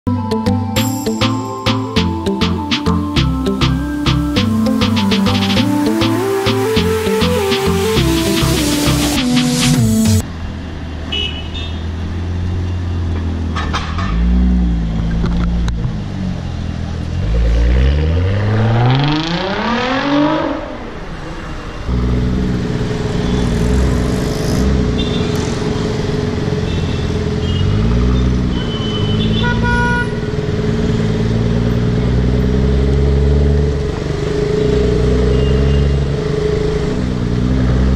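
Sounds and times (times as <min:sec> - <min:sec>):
car engine rumble and revving: 0:11.8 - 0:37.9
low engine drone with held tone: 0:21.9 - 0:28.5.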